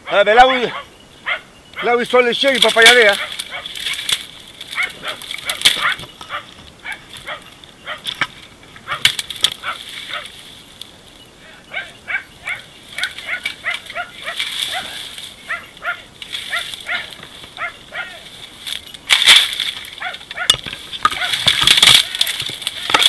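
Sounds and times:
dogs barking in rapid yaps: 0:00.0 - 0:02.0, 0:02.9 - 0:03.8, 0:04.6 - 0:08.1, 0:08.8 - 0:10.4, 0:11.7 - 0:18.3, 0:19.8 - 0:23.0.

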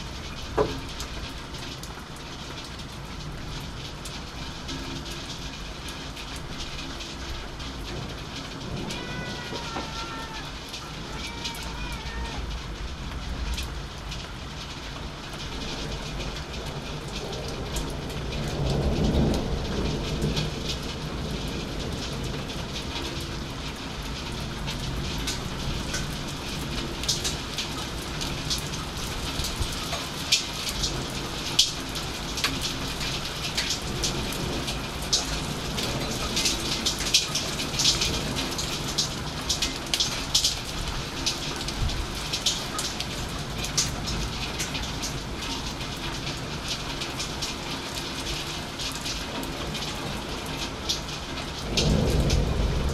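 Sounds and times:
raindrops ticking nearby: 0:00.0 - 0:52.9
steady rain: 0:00.0 - 0:52.9
thunder rumble: 0:05.2 - 0:52.9.

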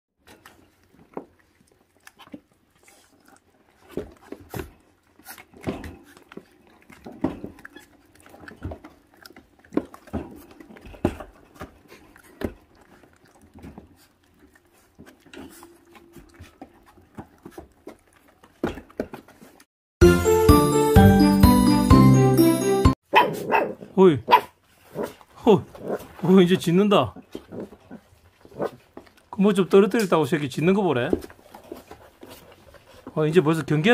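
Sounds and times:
puppies chewing meat: 0:00.2 - 0:19.7, 0:24.6 - 0:33.9
loud music: 0:20.0 - 0:22.9.

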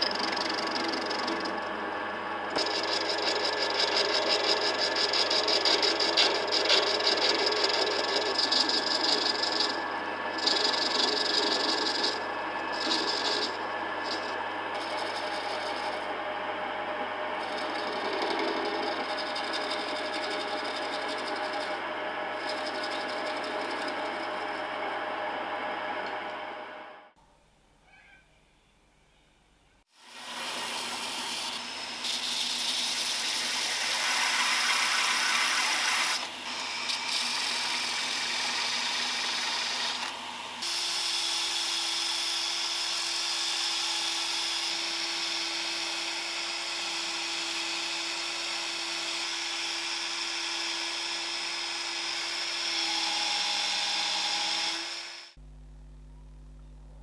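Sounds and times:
power drill whining: 0:00.0 - 0:16.3, 0:30.0 - 0:55.4
belt sander grinding wood: 0:00.0 - 0:26.8, 0:30.0 - 0:55.4
low hum: 0:55.4 - 0:57.0.

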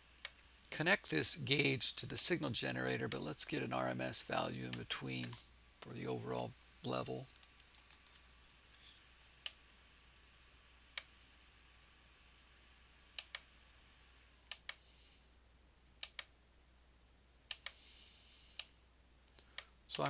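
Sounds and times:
faint low hum: 0:00.0 - 0:20.0
computer mouse clicking: 0:13.2 - 0:13.5, 0:14.5 - 0:14.8, 0:16.0 - 0:16.3, 0:17.5 - 0:17.8.

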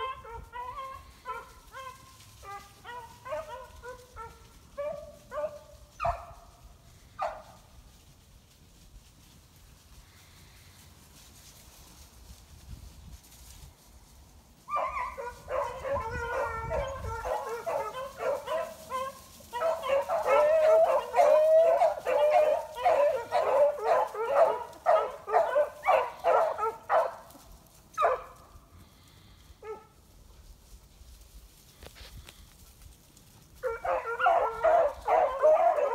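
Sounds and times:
dogs baying: 0:00.0 - 0:06.4, 0:14.7 - 0:27.4, 0:33.6 - 0:35.9
single dog cries: 0:14.7 - 0:27.1.

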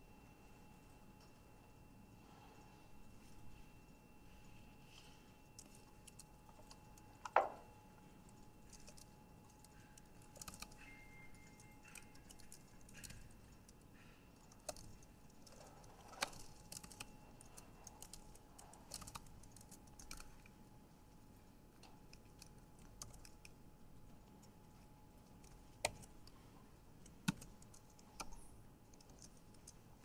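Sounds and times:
typing on computer keyboard: 0:05.5 - 0:20.6, 0:21.8 - 0:23.6, 0:24.2 - 0:30.0.

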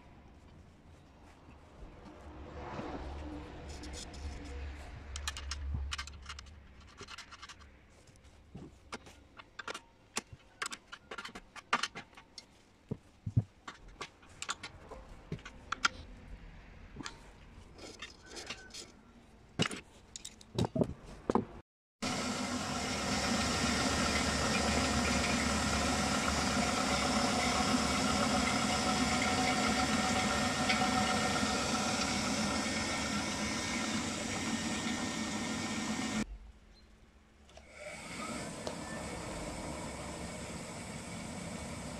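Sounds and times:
metal clicks of hand tools: 0:05.0 - 0:07.8, 0:08.9 - 0:12.5, 0:13.7 - 0:16.1
electric motor humming: 0:22.0 - 0:36.2, 0:37.7 - 0:41.9.

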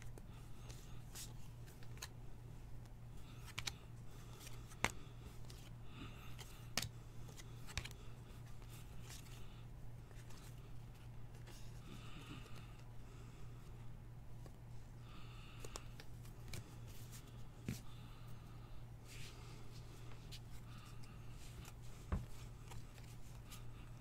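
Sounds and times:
cards being handled and sorted: 0:00.0 - 0:13.5, 0:15.3 - 0:18.1, 0:19.1 - 0:24.0.

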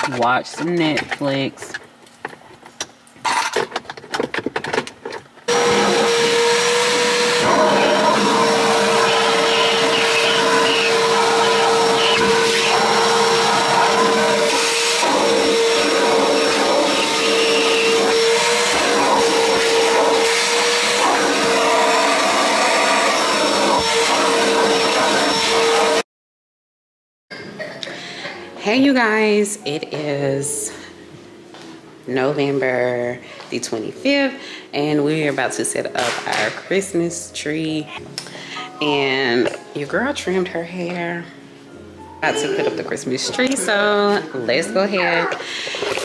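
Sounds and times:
vacuum cleaner motor whining: 0:05.5 - 0:26.0, 0:42.4 - 0:46.0.

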